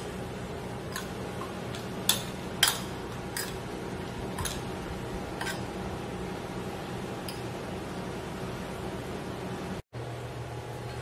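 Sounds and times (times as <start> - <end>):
metal spoon clinking ceramic bowl: 0.9 - 3.6, 5.4 - 5.7.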